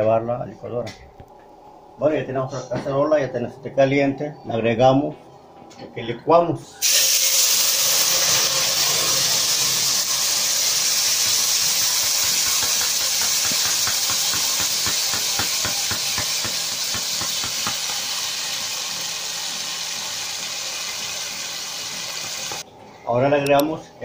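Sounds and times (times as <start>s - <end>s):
sauce sizzling in hot pot: 6.8s - 22.6s.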